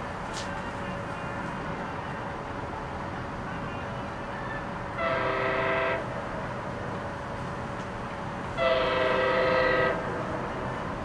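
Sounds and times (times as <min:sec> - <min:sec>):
train horn blasts: 0:04.9 - 0:06.1, 0:08.6 - 0:10.2.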